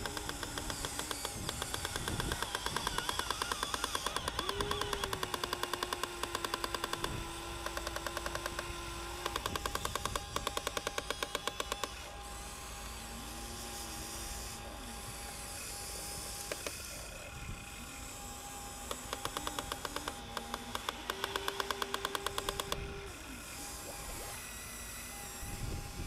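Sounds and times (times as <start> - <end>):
rapid even clicking: 0.0 - 12.0, 18.9 - 23.0
toy excavator motors whirring: 0.0 - 26.0.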